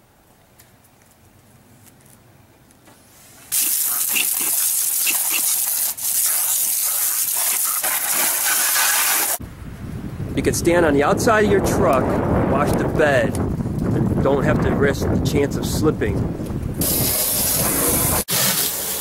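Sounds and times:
water spraying from hose wand: 0:03.5 - 0:09.4, 0:16.8 - 0:19.0.

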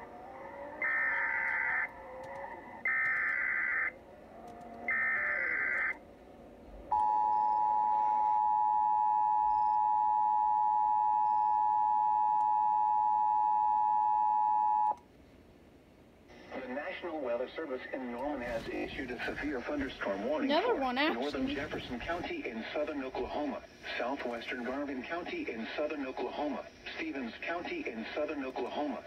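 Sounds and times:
screechy warbling digital data bursts: 0:00.8 - 0:01.9, 0:02.8 - 0:04.0, 0:04.9 - 0:06.0
steady two-tone attention signal: 0:06.9 - 0:15.0.

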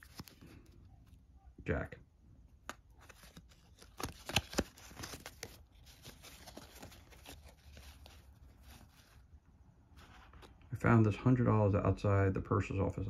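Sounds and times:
cardboard cards rustling and clicking: 0:00.0 - 0:01.2, 0:02.5 - 0:09.2.

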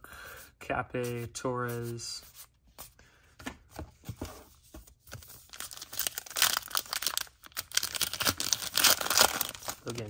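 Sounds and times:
wrapper tearing and crinkling: 0:05.5 - 0:10.0.

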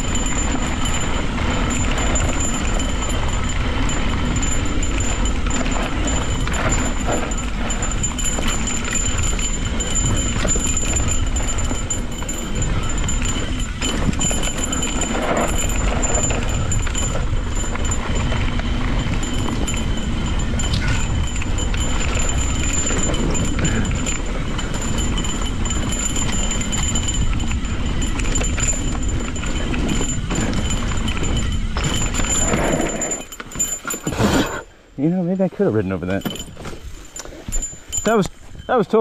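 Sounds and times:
bike tyres rumbling over rocks: 0:00.0 - 0:34.6
bike rattling and clattering: 0:00.0 - 0:39.0.

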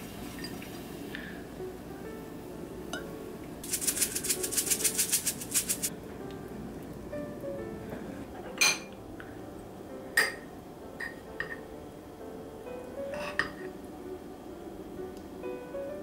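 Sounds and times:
background music: 0:01.1 - 0:16.0
utensils clinking on cookware: 0:08.6 - 0:08.9.

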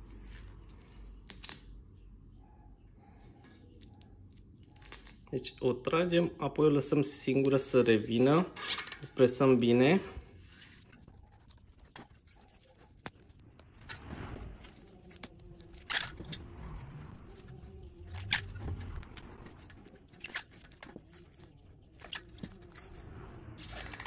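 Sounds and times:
tape rubbing and crackling: 0:03.7 - 0:05.3, 0:07.5 - 0:24.0.

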